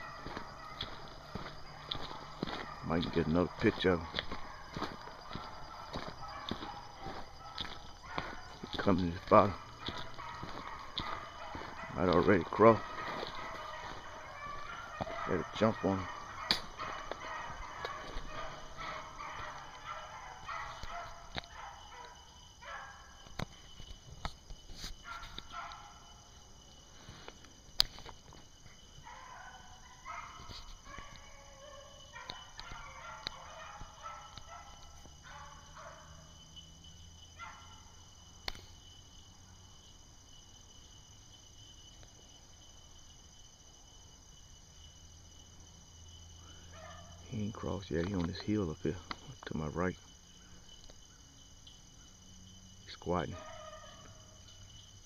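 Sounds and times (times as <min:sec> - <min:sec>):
hounds baying: 0:00.0 - 0:23.6, 0:25.0 - 0:27.4, 0:28.1 - 0:38.2, 0:45.2 - 0:49.2, 0:52.8 - 0:55.0.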